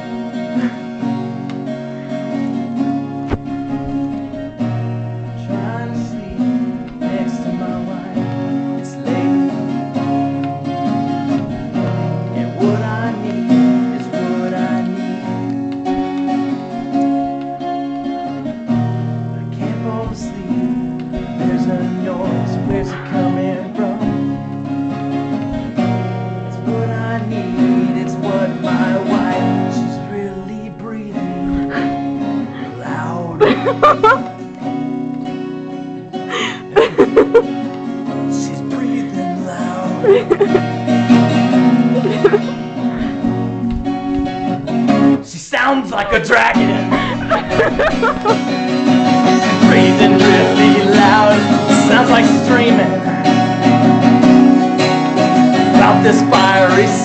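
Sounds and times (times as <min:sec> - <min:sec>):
acoustic guitar strumming: 0:00.0 - 0:57.0.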